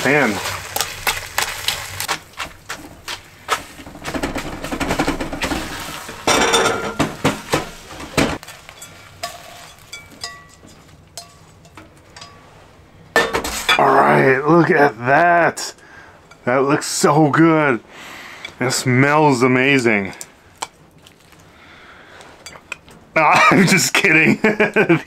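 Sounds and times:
spatula scraping metal wok: 0.0 - 12.4.

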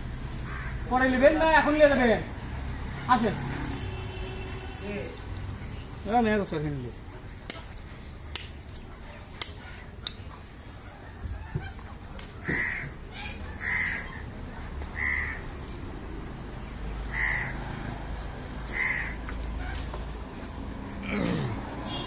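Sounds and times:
crow cawing: 0.4 - 0.9, 12.4 - 14.2, 15.0 - 15.5, 17.1 - 17.8, 18.7 - 19.2.

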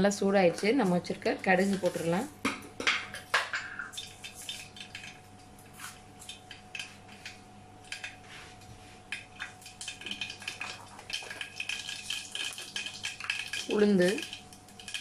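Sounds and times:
faint steady hum: 0.0 - 15.0
seeds popping in hot oil: 9.1 - 15.0.

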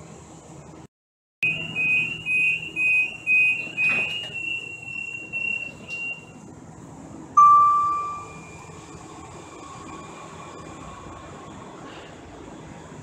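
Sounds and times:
door-closing warning beeps: 1.4 - 6.3
held warning tone: 7.4 - 8.9.

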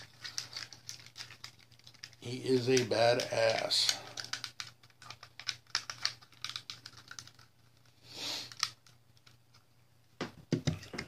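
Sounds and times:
plastic parts clicking: 0.0 - 7.5.

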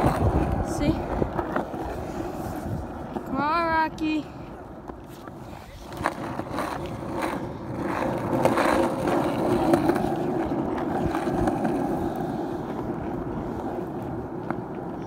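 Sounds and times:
skateboard wheels rolling on concrete: 0.0 - 15.0
skateboard sharp clicks: 4.8 - 15.0.

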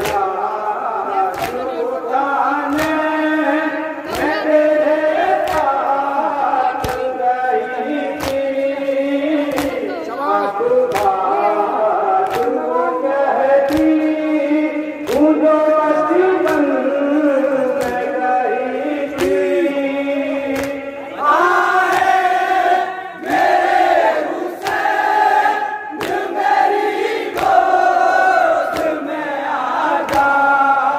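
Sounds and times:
chest-beating slaps: 0.0 - 0.4, 1.3 - 1.7, 2.6 - 3.2, 4.0 - 4.5, 5.3 - 6.0, 6.8 - 7.2, 8.1 - 8.6, 9.5 - 9.8, 10.9 - 11.2, 12.2 - 12.6, 13.6 - 14.3, 15.0 - 15.4, 16.4 - 16.8, 17.7 - 18.2, 19.1 - 19.6, 20.5 - 21.0, 21.6 - 30.5
men chanting a lament: 0.0 - 30.9.

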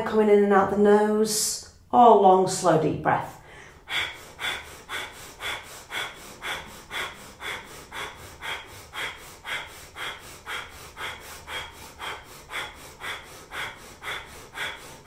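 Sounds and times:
rapid rhythmic nose breathing: 3.3 - 15.0.

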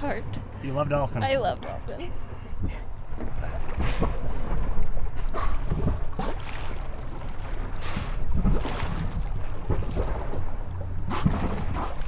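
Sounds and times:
low rumble: 0.0 - 12.0
water splashing against boat hull: 2.6 - 12.0.

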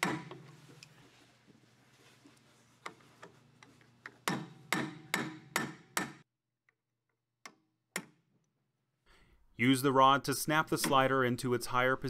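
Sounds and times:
hammer striking metal: 4.2 - 6.2.

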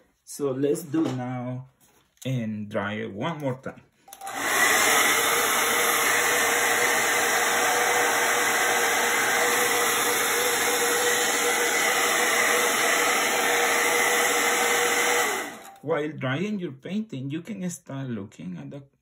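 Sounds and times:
hair dryer blowing: 4.1 - 15.8.

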